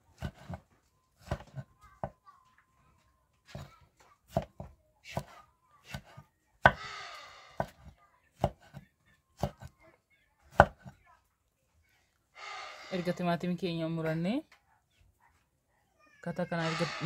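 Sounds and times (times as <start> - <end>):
knife chopping on hard surface: 0.1 - 0.6, 4.3 - 8.8.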